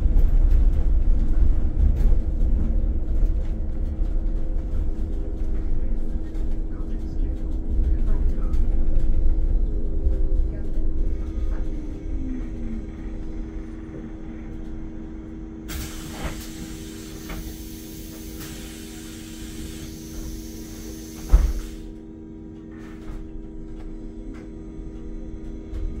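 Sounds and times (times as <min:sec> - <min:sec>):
electric bus hum: 0:00.0 - 0:26.0
compressed air hiss: 0:15.7 - 0:21.9.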